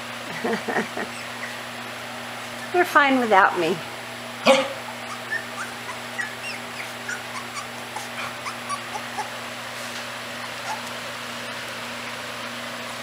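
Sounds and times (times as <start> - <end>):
steady low hum: 0.0 - 13.0
puppies squeaking and whimpering: 1.0 - 1.8, 4.8 - 9.6, 10.2 - 11.2.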